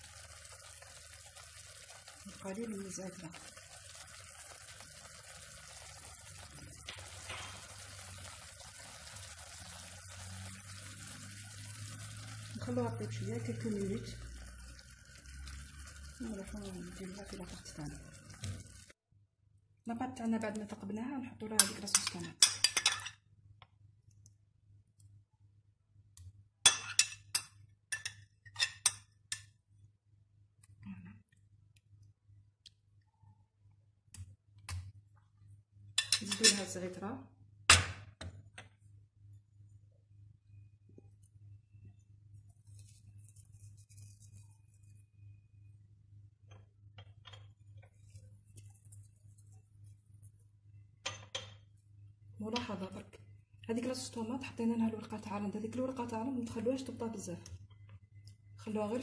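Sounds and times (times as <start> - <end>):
sauce simmering: 0.0 - 19.0
metal spoon clinking on glass: 21.6 - 23.2.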